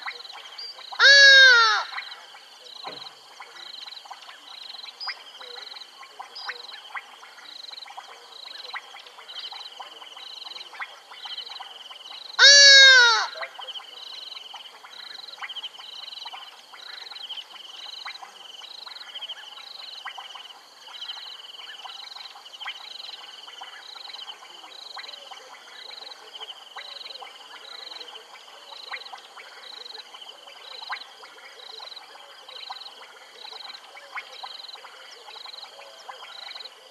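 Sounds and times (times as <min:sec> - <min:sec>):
frog chorus high calls: 0:00.0 - 0:03.9, 0:08.4 - 0:36.9
loud rising and falling animal call: 0:01.0 - 0:01.9, 0:12.4 - 0:13.4.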